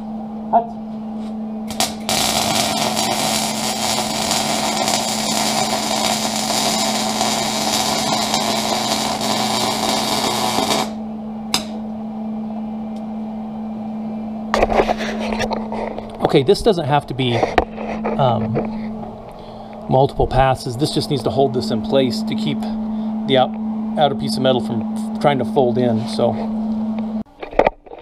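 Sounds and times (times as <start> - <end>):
steady hum: 0.0 - 28.0
welding arc crackling: 1.7 - 11.8.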